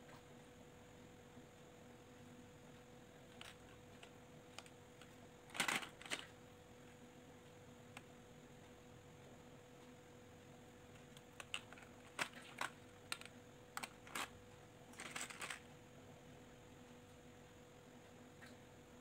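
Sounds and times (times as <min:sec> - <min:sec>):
faint steady hum: 0:00.0 - 0:19.0
plastic beads clicking and rattling: 0:03.3 - 0:06.3, 0:11.1 - 0:14.3, 0:14.9 - 0:15.6.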